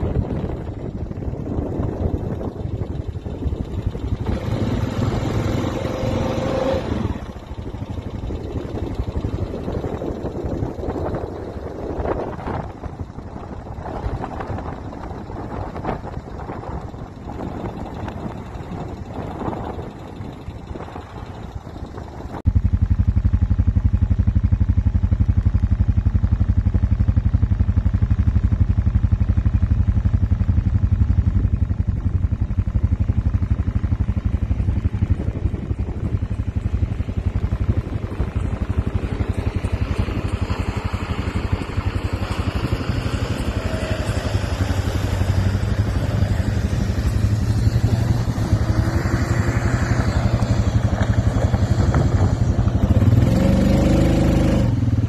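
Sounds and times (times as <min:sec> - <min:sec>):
vehicle engine droning: 0:00.0 - 0:55.0.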